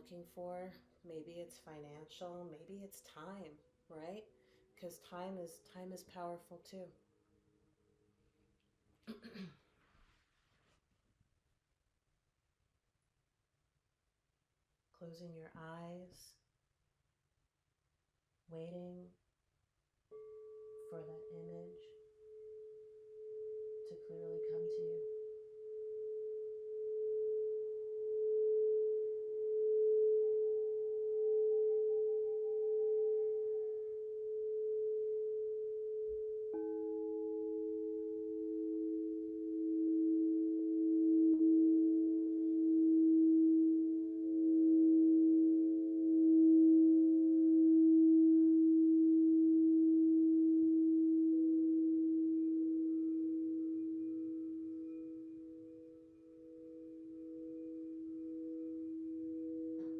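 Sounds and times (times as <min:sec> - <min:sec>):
higher singing bowl tone: 0:20.1 - 0:59.9
singing bowl sustained tone: 0:20.1 - 0:59.9.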